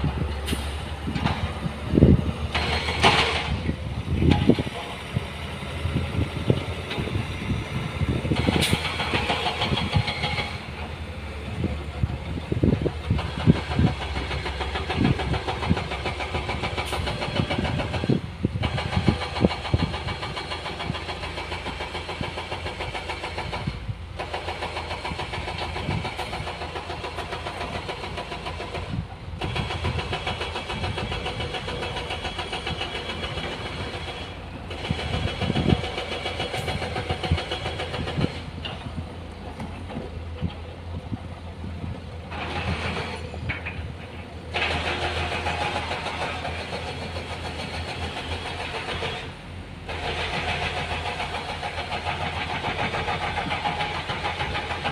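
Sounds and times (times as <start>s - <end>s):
diesel truck engine running: 0.0s - 54.9s.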